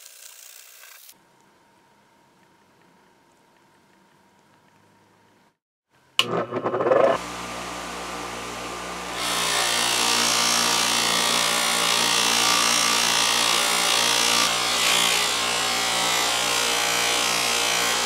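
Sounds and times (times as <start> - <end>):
buffing wheel motor hum: 6.2 - 14.8.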